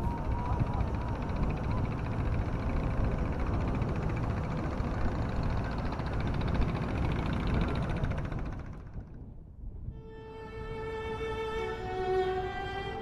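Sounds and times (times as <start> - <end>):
boat engine running: 0.0 - 9.3
rushing wind and water: 9.9 - 13.0.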